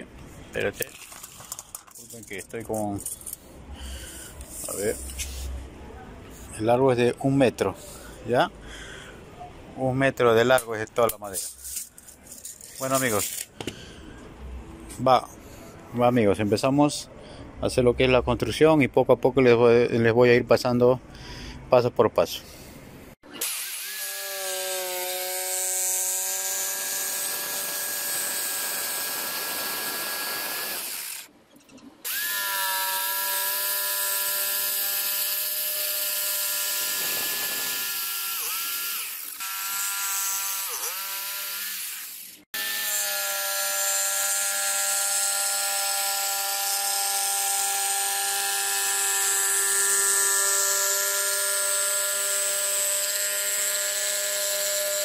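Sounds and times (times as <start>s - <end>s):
electric saw cutting wood: 23.3s - 31.3s, 32.0s - 55.0s.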